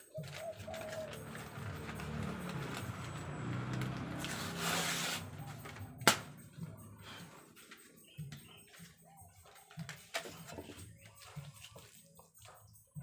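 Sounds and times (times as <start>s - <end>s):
stiff paper bag rustling: 0.0s - 6.3s
low vehicle engine drone: 0.2s - 7.8s.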